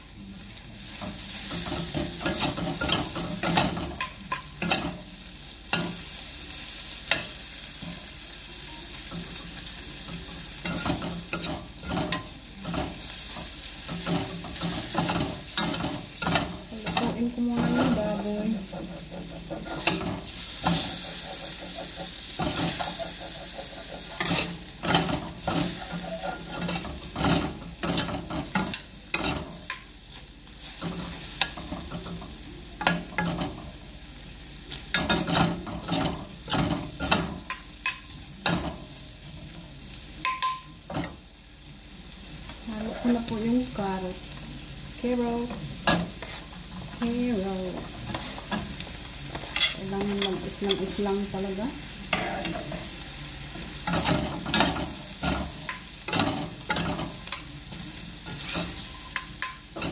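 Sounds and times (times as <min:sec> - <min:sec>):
meat sizzling in oil: 0:00.0 - 0:59.9
metal utensils scraping a wok: 0:10.1 - 0:29.7, 0:45.8 - 0:52.9, 0:53.6 - 0:59.9.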